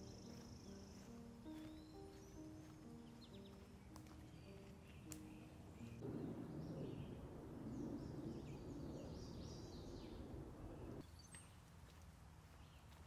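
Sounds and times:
small birds singing: 0.0 - 13.0
steady low rushing noise: 6.0 - 11.0.

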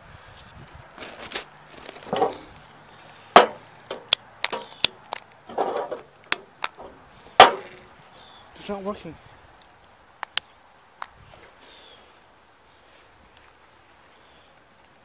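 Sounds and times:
rustling: 0.4 - 9.1.

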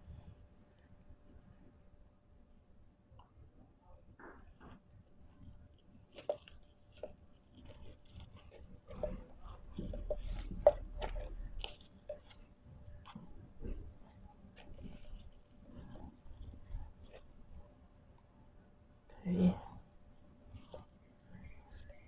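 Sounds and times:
potting soil crackling: 5.4 - 17.7.

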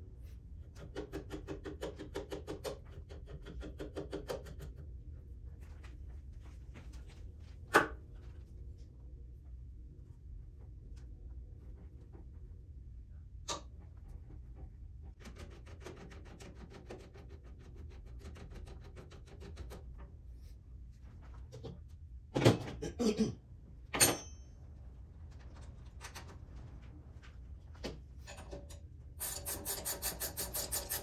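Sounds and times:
rapid clicking of hand tool: 0.8 - 4.7, 29.2 - 31.0
low steady hum: 4.3 - 31.0.

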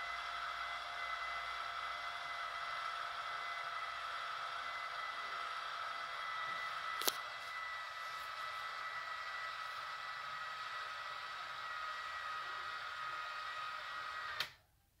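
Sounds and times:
shade motor whining: 0.0 - 14.6
motor stopping click: 13.9 - 14.6.

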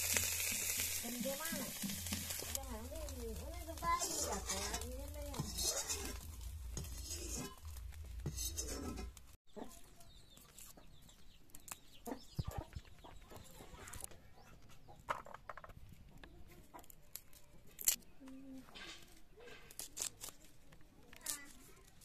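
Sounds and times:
oil sizzling in a wok: 0.0 - 9.4
spatula stirring in a wok: 0.0 - 9.4
garlic being peeled by hand: 0.0 - 13.0, 16.5 - 22.0
chickens clucking: 11.9 - 16.9.

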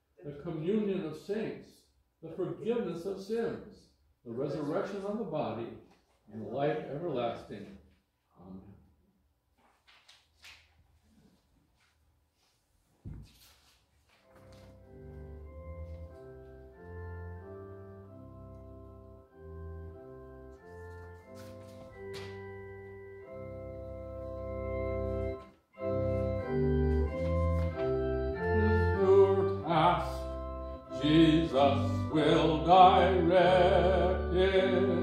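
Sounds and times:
organ playing held chords: 14.2 - 35.0.

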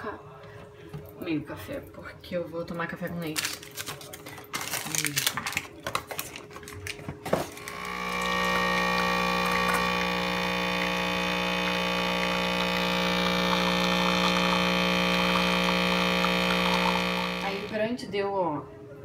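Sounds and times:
espresso machine pump humming: 7.6 - 17.8.

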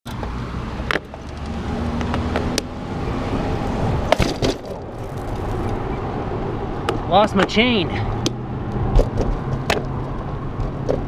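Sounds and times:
road traffic: 0.0 - 11.0
wind and tyre rumble: 0.1 - 11.0
bike clicks and knocks: 4.1 - 5.8, 10.6 - 11.0.

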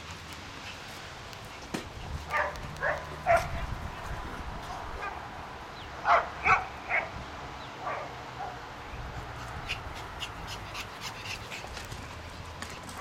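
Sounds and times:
puppy yapping: 2.3 - 3.7.

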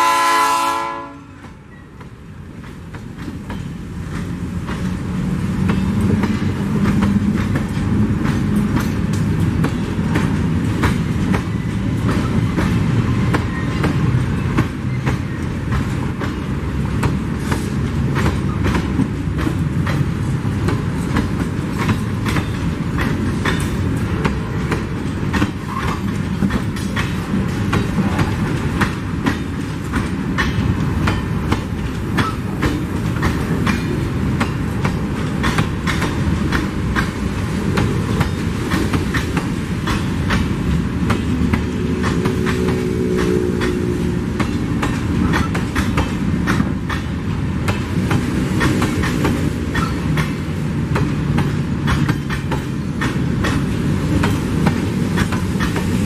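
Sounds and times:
train wheels rumbling on rails: 0.0 - 56.0
wheels clicking over rail joints: 1.4 - 56.0.

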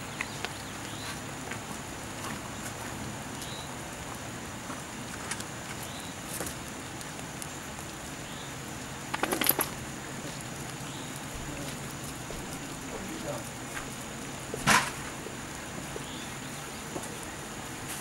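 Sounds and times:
rapid scratching clicks: 9.1 - 9.8.

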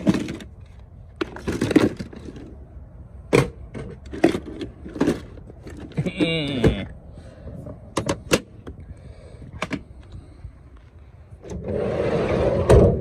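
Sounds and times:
sliding door rolling on track: 11.4 - 13.0
sliding door slamming: 11.5 - 13.0.

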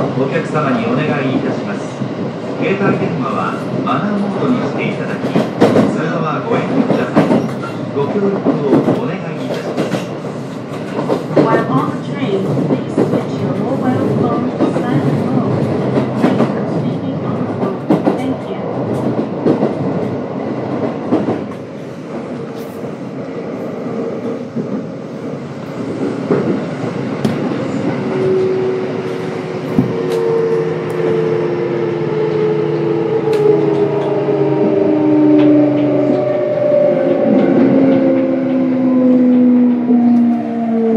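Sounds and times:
train inverter whine: 21.2 - 40.9.

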